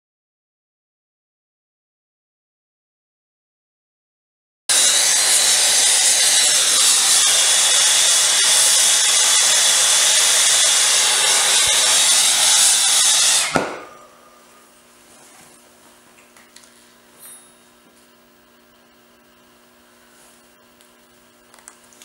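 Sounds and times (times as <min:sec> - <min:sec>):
torch flame hissing: 0:05.7 - 0:14.6
faint hum: 0:13.7 - 0:22.0.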